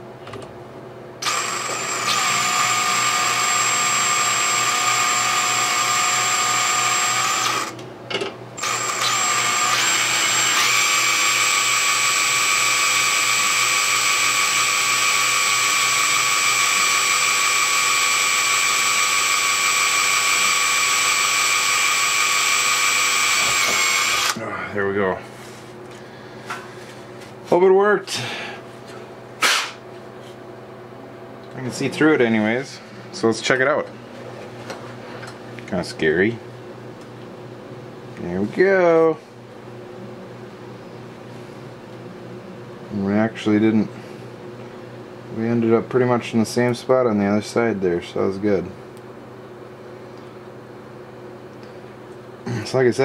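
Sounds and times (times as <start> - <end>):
cordless drill drilling metal: 1.2 - 7.8, 8.6 - 24.4.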